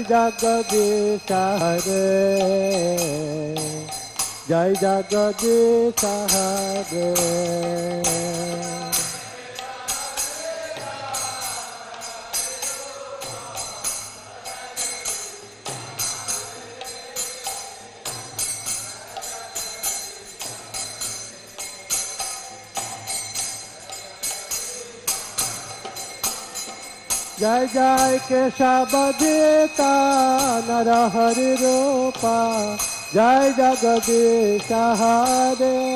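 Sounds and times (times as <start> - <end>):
hand cymbals and bells beat: 0.0 - 35.9
person singing: 4.5 - 10.5, 27.4 - 35.9.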